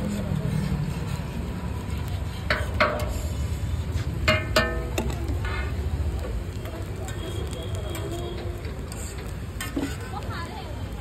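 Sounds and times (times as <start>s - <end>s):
metal spatula clanging on iron pan: 2.4s - 3.2s, 4.2s - 5.7s, 9.6s - 10.1s.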